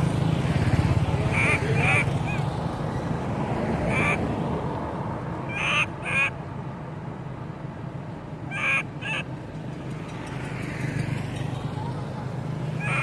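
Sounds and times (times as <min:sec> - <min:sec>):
road traffic rumble: 0:00.0 - 0:13.0
baby monkey crying: 0:01.2 - 0:02.5, 0:03.9 - 0:04.2, 0:05.5 - 0:06.3, 0:12.8 - 0:13.0.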